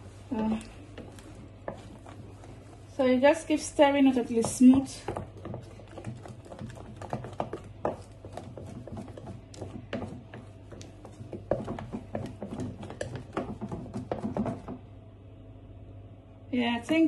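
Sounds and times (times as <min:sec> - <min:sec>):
spatula scraping and tapping bowl: 0:00.5 - 0:02.8, 0:04.2 - 0:14.8.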